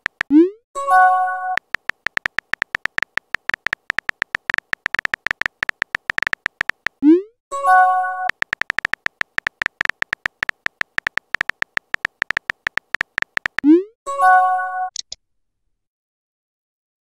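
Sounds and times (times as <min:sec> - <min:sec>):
keyboard tapping clicks: 0:00.0 - 0:00.4, 0:01.5 - 0:07.0, 0:08.2 - 0:13.8.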